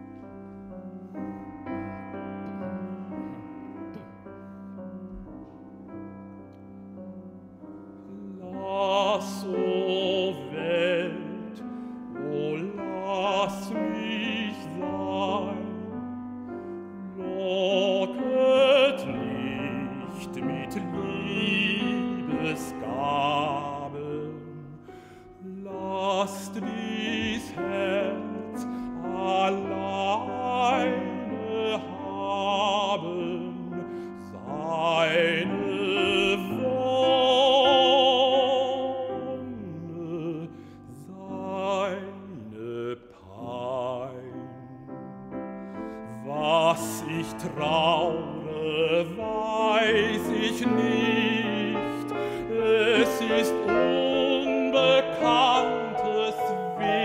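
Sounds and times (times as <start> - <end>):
piano accompaniment: 0.0 - 57.0
baritone singing: 8.0 - 57.0.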